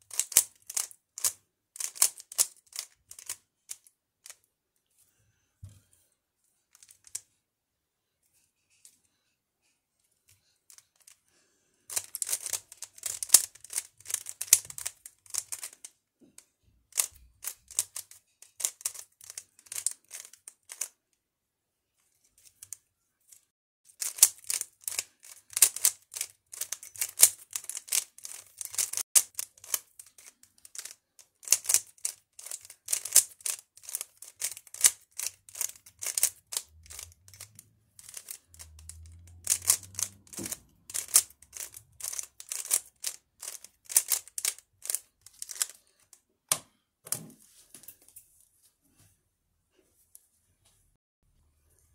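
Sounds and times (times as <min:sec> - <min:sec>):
puzzle cube layers clicking: 0:00.1 - 0:04.4, 0:11.9 - 0:15.8, 0:16.9 - 0:20.9, 0:24.0 - 0:45.8.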